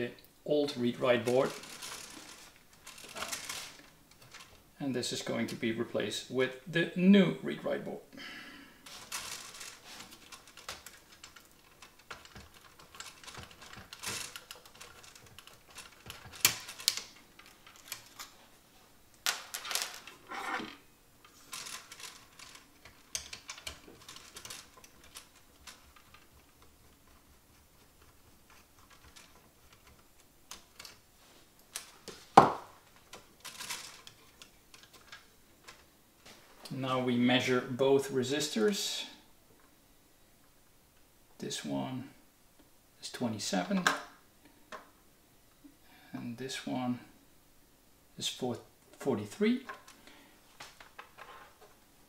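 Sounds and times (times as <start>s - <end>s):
fingers handling plastic parts: 1.2s - 4.6s, 8.9s - 18.4s, 19.2s - 31.0s, 32.8s - 35.9s.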